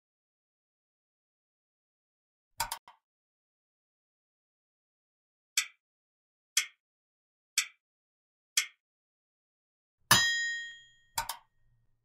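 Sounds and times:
timer ticks: 5.6s - 5.8s, 6.6s - 6.8s, 7.6s - 7.8s, 8.6s - 8.8s
ringing chime: 10.1s - 11.1s.

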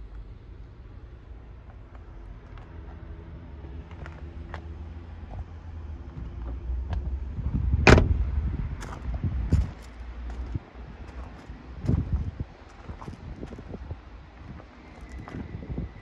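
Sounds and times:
van door slamming shut: 7.8s - 8.2s.

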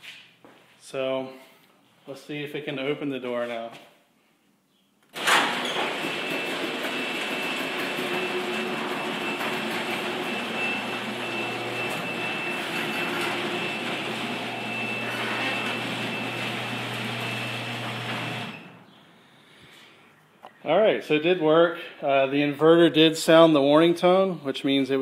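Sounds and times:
garage door opener motor: 5.1s - 18.9s
high thin warning tone: 7.1s - 18.7s.

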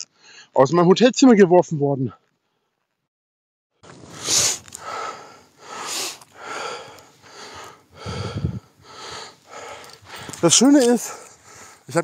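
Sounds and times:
man breathing heavily: 4.0s - 12.0s.

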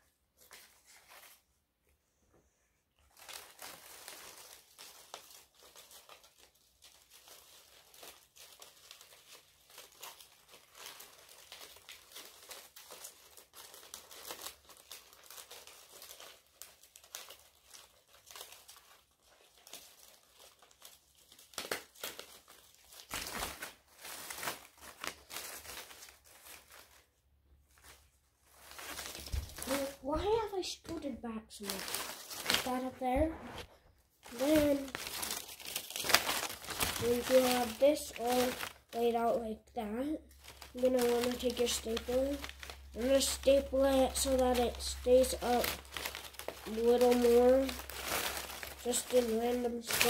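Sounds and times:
paper rustling and crinkling: 0.3s - 1.5s, 3.0s - 39.5s, 40.2s - 50.0s
paper bumps: 28.6s - 39.1s, 40.4s - 50.0s.

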